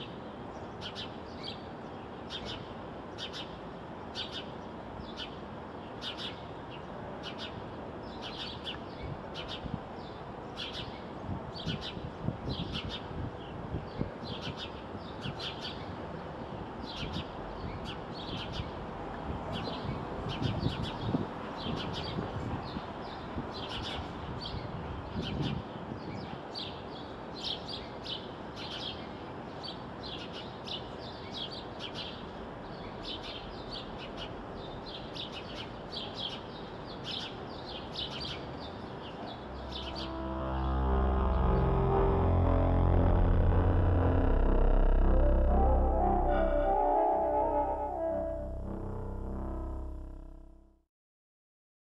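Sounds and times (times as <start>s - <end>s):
low rumble: 39.4s - 50.8s.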